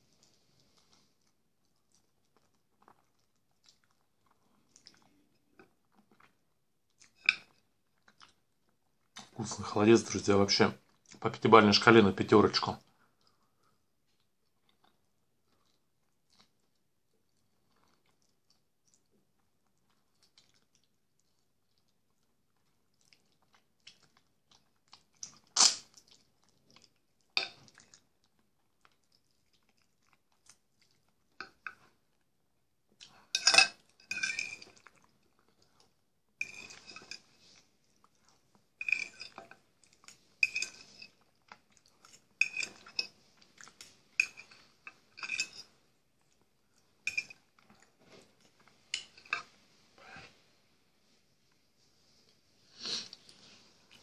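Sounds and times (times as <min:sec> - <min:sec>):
person chewing: 0:00.0 - 0:09.4, 0:13.1 - 0:32.3, 0:32.9 - 0:50.3
metal spoon clinking on bowl: 0:33.4 - 0:34.6, 0:40.4 - 0:41.1, 0:42.4 - 0:43.1, 0:44.2 - 0:44.6.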